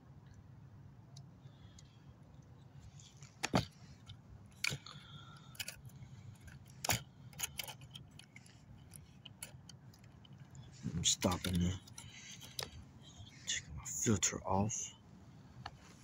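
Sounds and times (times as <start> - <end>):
gear being handled clicks and rattles: 1.1 - 13.4.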